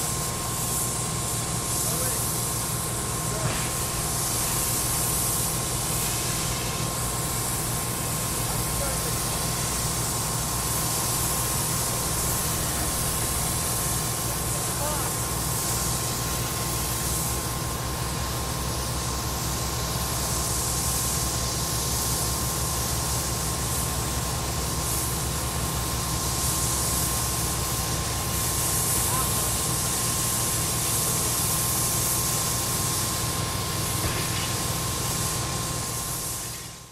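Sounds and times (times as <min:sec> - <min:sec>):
constant hiss: 0:00.0 - 0:36.9.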